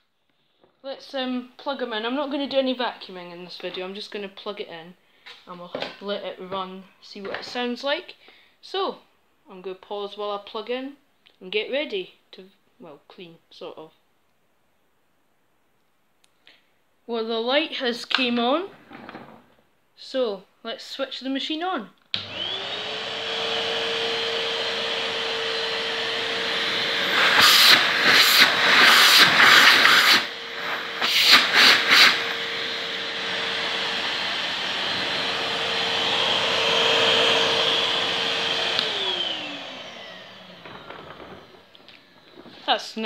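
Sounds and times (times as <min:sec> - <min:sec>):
vacuum cleaner motor whine: 0:22.2 - 0:42.5
rush of air from hose: 0:27.2 - 0:32.4.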